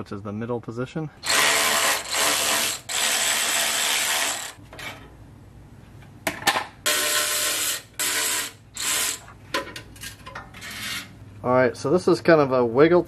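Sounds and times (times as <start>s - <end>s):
cordless power tool whirring: 1.2s - 4.6s.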